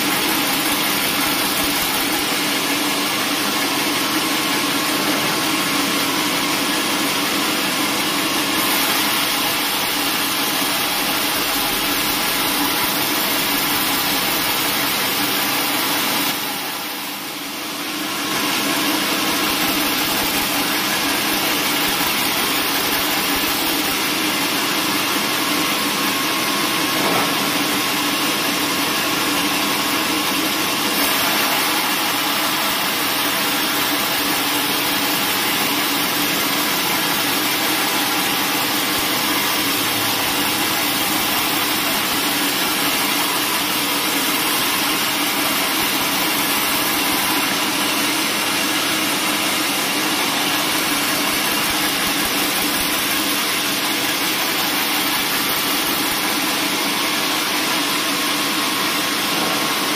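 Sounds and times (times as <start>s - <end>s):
bandsaw mill drone: 0.0s - 5.9s, 18.2s - 26.0s, 27.0s - 58.3s.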